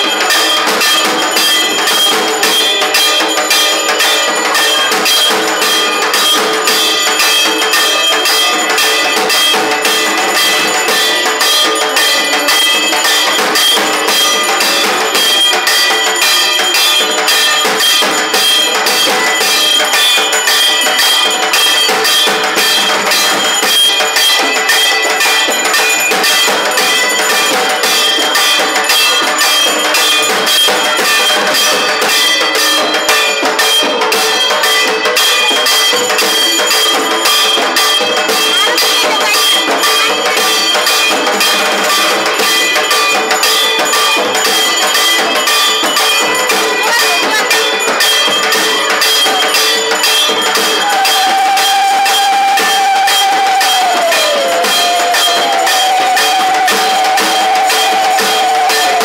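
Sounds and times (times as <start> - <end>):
bells and metal percussion: 0.0 - 59.0
metallic ringing: 0.0 - 59.0.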